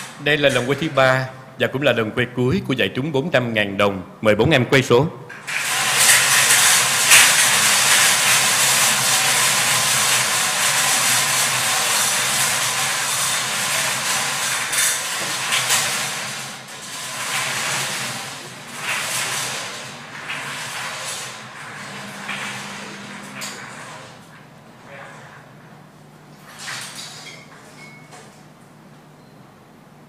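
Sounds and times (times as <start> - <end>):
lottery balls rattling in wire drums: 0.0 - 1.3, 5.4 - 25.5.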